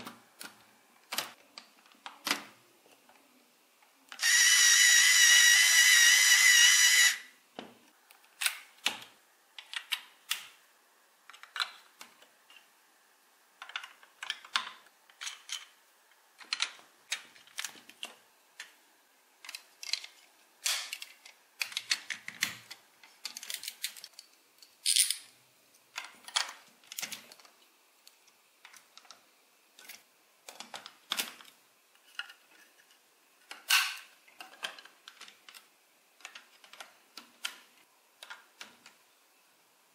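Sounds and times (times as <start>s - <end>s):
small toy motor whirring: 4.2s - 7.3s.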